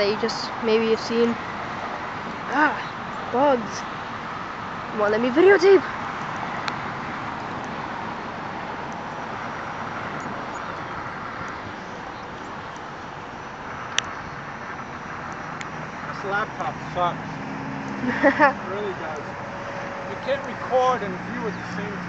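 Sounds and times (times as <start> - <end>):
outdoor background hiss: 0.0 - 22.0.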